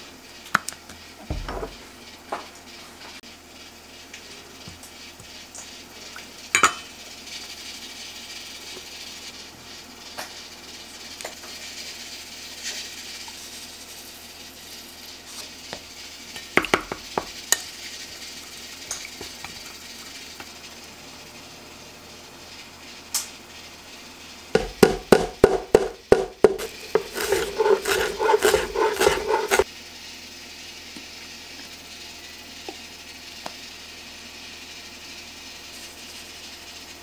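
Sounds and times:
spoon knocking against bowl: 0:24.6 - 0:29.6
spoon stirring sauce in metal bowl: 0:25.4 - 0:29.6.

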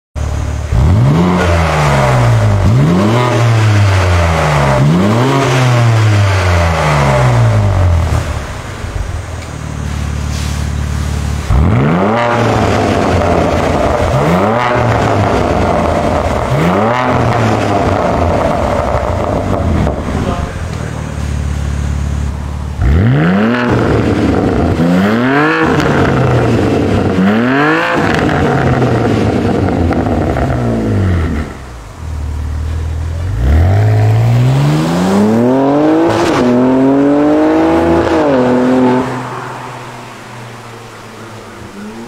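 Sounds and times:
car engine idling: 0:00.2 - 0:37.2, 0:37.8 - 0:42.0
car engine revving: 0:00.2 - 0:42.0.

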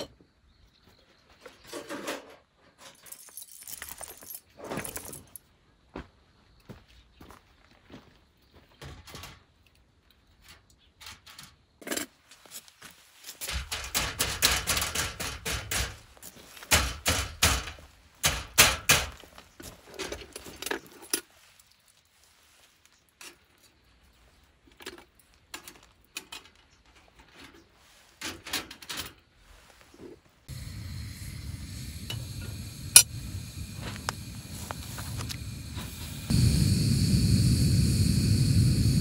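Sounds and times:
camp cooking gear clattering: 0:08.7 - 0:12.7, 0:13.3 - 0:21.5, 0:24.7 - 0:29.3, 0:30.5 - 0:36.3.

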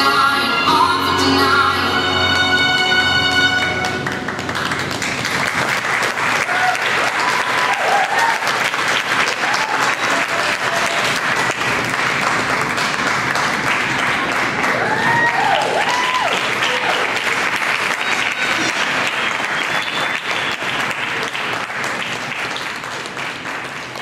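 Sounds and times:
audience applauding: 0:02.3 - 0:24.0
whoops from audience: 0:06.4 - 0:08.6, 0:09.2 - 0:11.1, 0:14.6 - 0:17.2.

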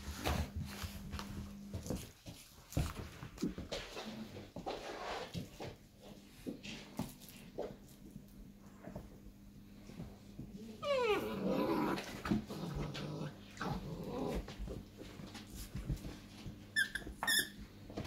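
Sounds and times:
puppies growling: 0:10.4 - 0:15.0
puppies crying: 0:10.8 - 0:11.6
puppies squeaking: 0:16.8 - 0:17.6.

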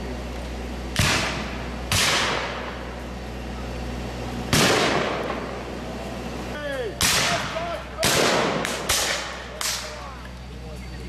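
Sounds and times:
musket shots: 0:01.0 - 0:02.6, 0:04.5 - 0:05.4, 0:07.0 - 0:09.9.

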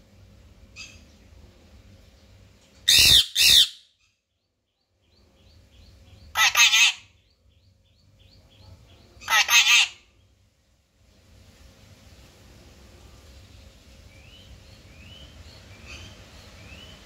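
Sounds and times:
parakeet shrieking: 0:02.9 - 0:03.8, 0:06.3 - 0:07.2, 0:09.2 - 0:10.1.

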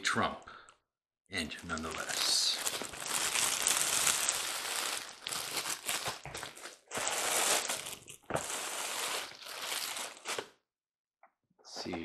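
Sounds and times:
cardboard and paper rustling: 0:01.6 - 0:10.5.

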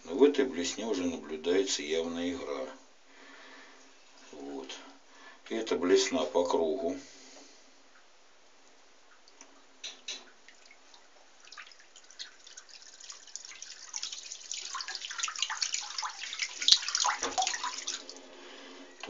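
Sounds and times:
water splashing in a bathtub: 0:09.1 - 0:18.4.

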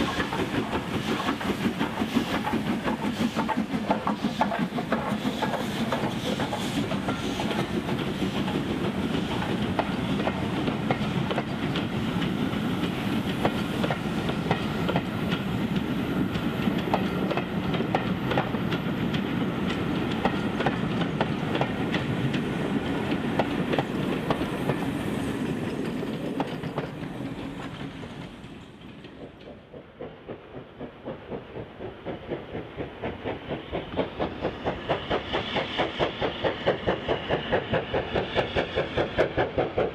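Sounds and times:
distant steam locomotive exhaust beats: 0:00.0 - 0:39.9
train wheels clicking over rail joints: 0:00.0 - 0:39.9.

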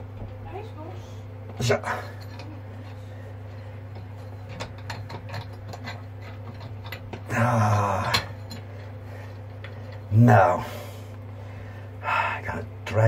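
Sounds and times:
steady low hum: 0:00.0 - 0:13.0
strained vocal grunt: 0:07.3 - 0:08.3.

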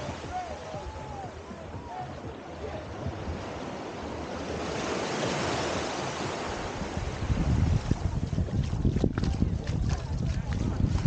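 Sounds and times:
small waves washing over sand: 0:00.0 - 0:11.0
wind buffeting microphone: 0:06.4 - 0:11.0.

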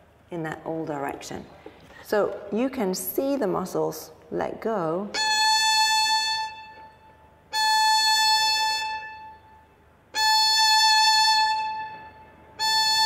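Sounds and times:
violin bowed strokes: 0:05.1 - 0:09.5, 0:10.1 - 0:13.0.

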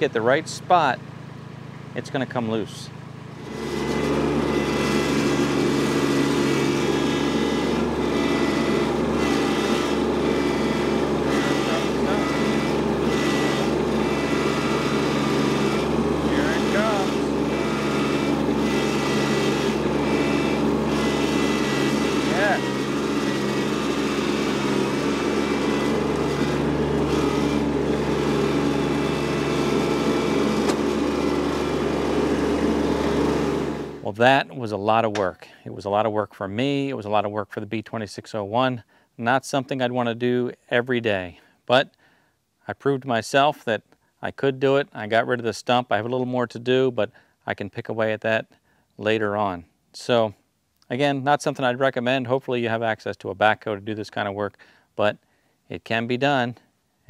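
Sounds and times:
tractor diesel engine running: 0:00.0 - 0:34.1
loader bucket against tree stump: 0:03.4 - 0:34.0.

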